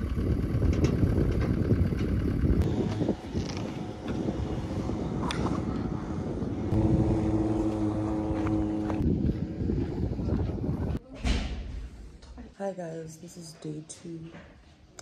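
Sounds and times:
steady engine hum: 0.0 - 11.0
vehicle engine rumble: 0.0 - 11.0.

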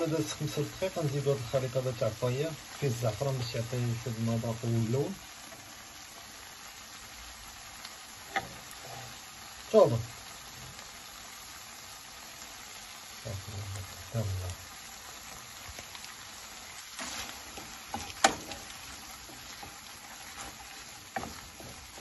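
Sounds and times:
shrimp sizzling in a pan: 0.0 - 22.0
wooden spatula scraping a pan: 8.2 - 9.5, 16.5 - 22.0.

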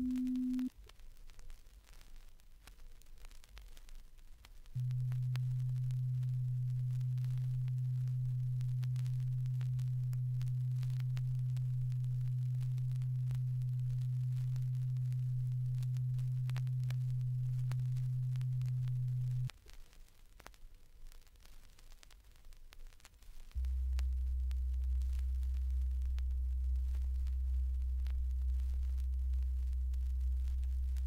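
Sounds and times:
low sine test tone: 0.0 - 0.7, 4.8 - 19.5, 23.6 - 31.0.

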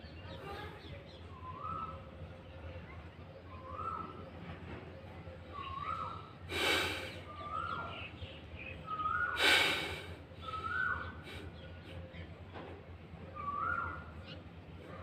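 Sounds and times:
person breathing out hard: 6.5 - 7.2, 9.4 - 10.2.

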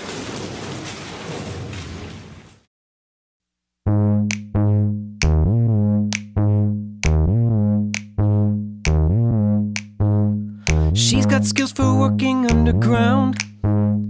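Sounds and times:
synthesizer bass notes: 3.9 - 14.0
drum machine clicks: 4.2 - 4.5, 6.1 - 6.4, 7.0 - 7.3, 7.9 - 8.2, 8.8 - 9.1, 10.7 - 10.9.

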